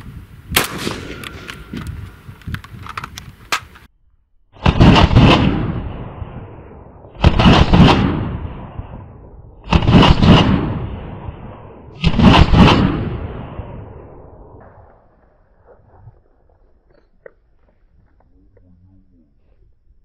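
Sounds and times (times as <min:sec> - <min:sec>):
rifle firing rapid shots: 0:00.6 - 0:01.8, 0:07.2 - 0:08.3, 0:09.7 - 0:10.7.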